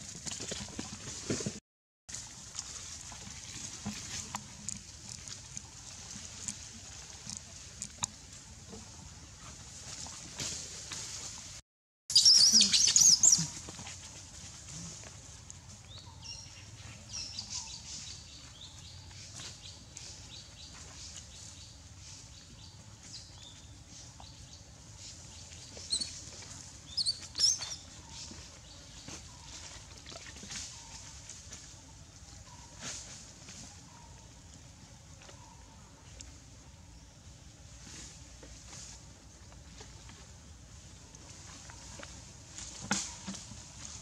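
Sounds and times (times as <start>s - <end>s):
monkey squealing screams: 12.1s - 13.5s.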